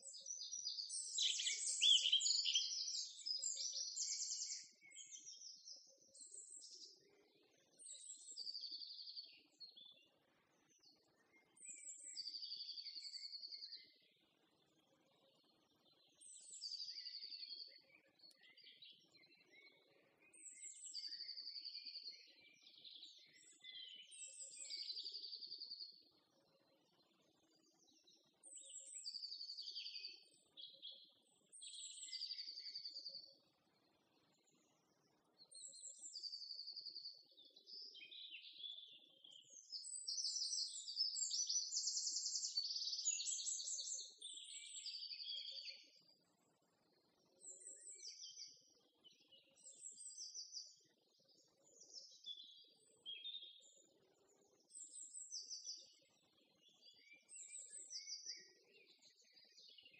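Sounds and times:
songbird whistles and trills: 0.0 - 7.0, 39.4 - 45.9.

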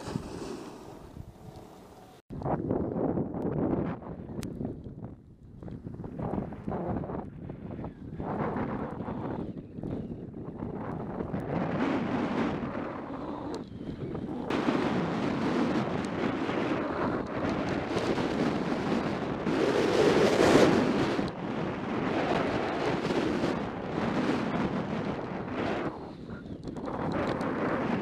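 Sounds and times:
skis scraping over snow: 0.0 - 2.2
wind rushing over microphone: 0.0 - 28.0.

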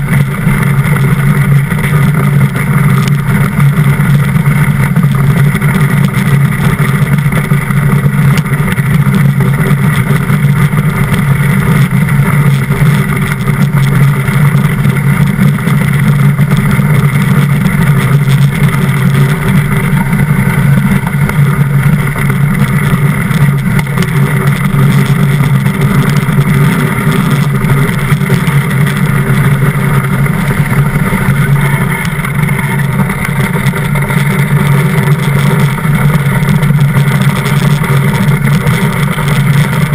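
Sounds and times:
steel runners rumbling on ice: 0.0 - 39.9.

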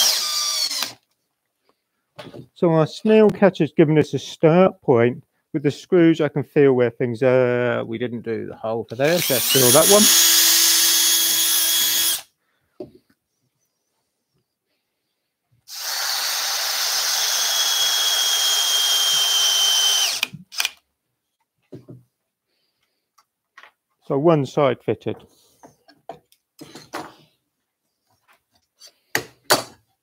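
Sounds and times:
cordless drill boring into wood: 0.0 - 1.0, 9.0 - 12.3, 15.7 - 20.8.

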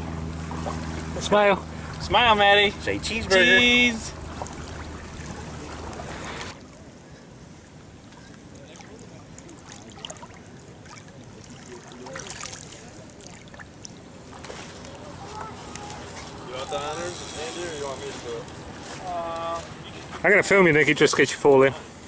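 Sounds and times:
lake water lapping: 0.0 - 22.0
small splashes and drips: 4.2 - 6.8, 8.0 - 16.3.

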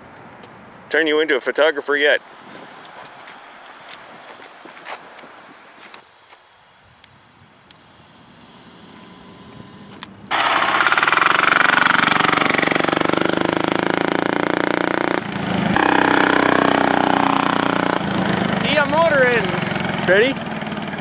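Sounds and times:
small diesel engine at high revs: 7.9 - 21.0.

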